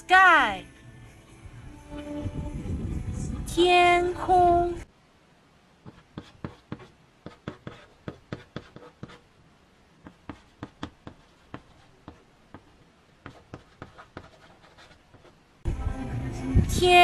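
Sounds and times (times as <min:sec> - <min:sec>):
chalk tapping and scratching: 0:05.8 - 0:09.2, 0:10.0 - 0:15.4.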